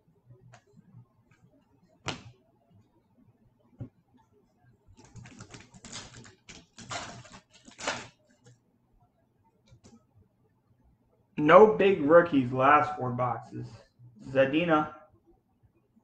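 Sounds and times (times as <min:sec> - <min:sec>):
foil pack crackling: 0:05.1 - 0:08.2.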